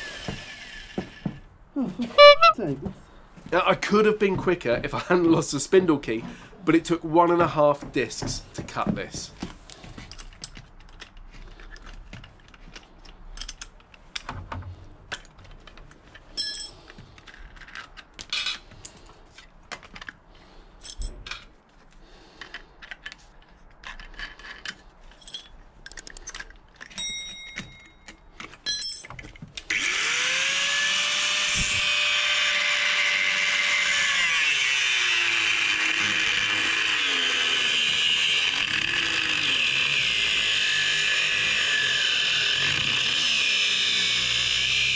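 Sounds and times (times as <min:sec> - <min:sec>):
metal clicks and clinks: 0:23.8 - 0:29.4
angle grinder cutting steel: 0:29.7 - 0:44.9.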